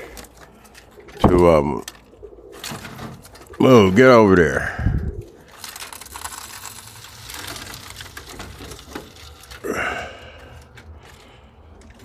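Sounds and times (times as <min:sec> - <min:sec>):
rustling against wood and wire mesh: 0:00.0 - 0:12.0
short vocal sound: 0:09.6 - 0:10.3.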